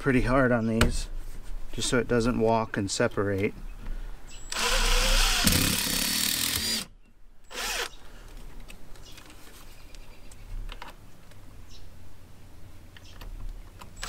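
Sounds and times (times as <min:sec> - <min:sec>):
power drill driving screw: 0:04.5 - 0:06.9, 0:07.5 - 0:08.0.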